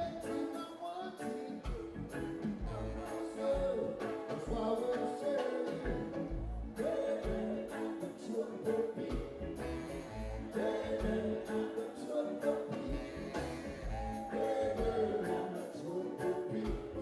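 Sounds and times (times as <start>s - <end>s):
electric guitar: 0.0s - 17.0s
lead voice singing: 0.0s - 17.0s
backing singers: 1.2s - 17.0s
drums and bass beat: 1.6s - 7.7s, 9.0s - 11.6s, 12.7s - 15.6s.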